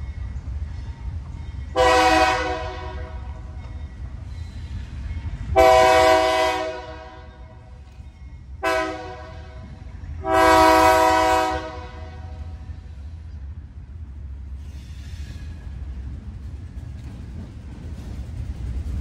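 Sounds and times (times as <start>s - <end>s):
locomotive air horn blasts: 1.8s - 3.3s, 5.5s - 7.4s, 8.6s - 9.6s, 10.2s - 12.6s.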